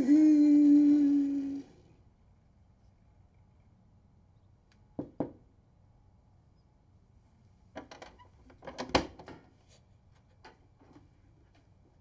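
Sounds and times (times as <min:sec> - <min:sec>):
objects knocking on wood: 0:05.0 - 0:05.4.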